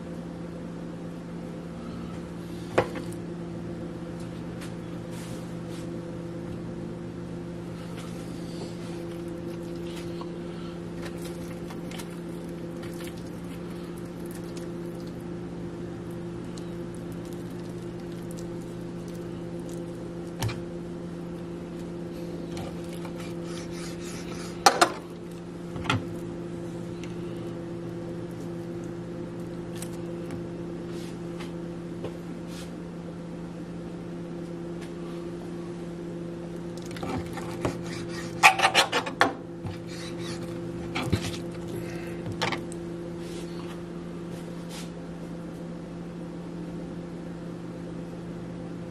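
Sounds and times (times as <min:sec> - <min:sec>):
knife trimming raw chicken: 0:37.3 - 0:38.9.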